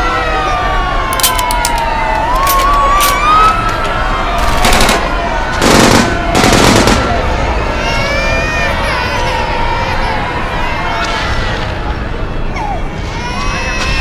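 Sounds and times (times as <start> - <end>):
siren-like wail: 0.0 - 14.0
loud noisy bursts: 4.1 - 7.8
sharp gunfire-like cracks: 4.4 - 7.4.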